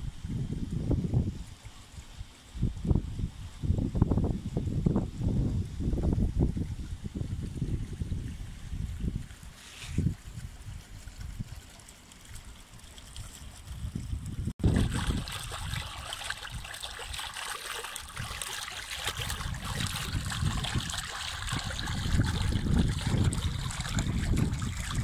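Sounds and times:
fountain water splashing into pool: 0:08.8 - 0:25.0
low gusty rumbling: 0:19.3 - 0:25.0.

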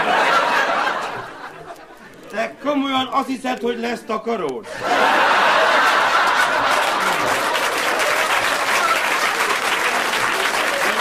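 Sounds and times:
audience applauding: 0:04.9 - 0:11.0.

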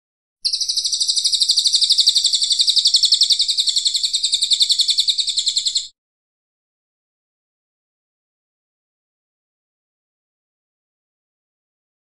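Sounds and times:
bird rattling call: 0:00.4 - 0:05.9.

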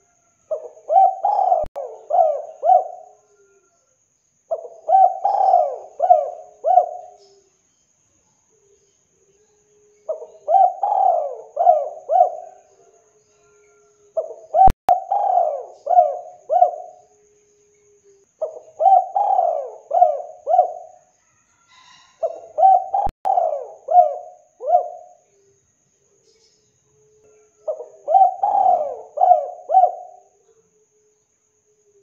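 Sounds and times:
dove cooing: 0:00.0 - 0:03.7, 0:04.5 - 0:07.4, 0:10.0 - 0:17.2, 0:17.8 - 0:21.1, 0:21.7 - 0:25.2, 0:27.1 - 0:30.6.

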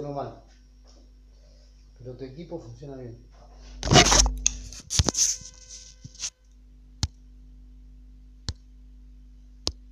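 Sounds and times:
low steady hum: 0:00.0 - 0:09.9
buzzing hum: 0:03.5 - 0:09.9
rustling handling noise: 0:03.6 - 0:06.3.

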